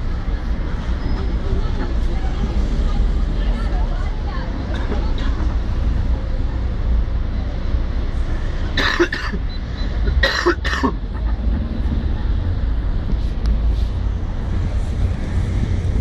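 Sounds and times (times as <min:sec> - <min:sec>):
street noise: 0:00.0 - 0:16.0
person coughing: 0:08.8 - 0:09.4, 0:10.2 - 0:11.0
wind rumble on microphone: 0:11.3 - 0:16.0.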